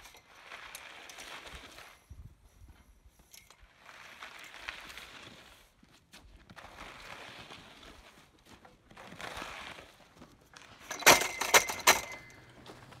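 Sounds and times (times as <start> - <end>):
sharp clinks and knocks: 10.8 - 12.6.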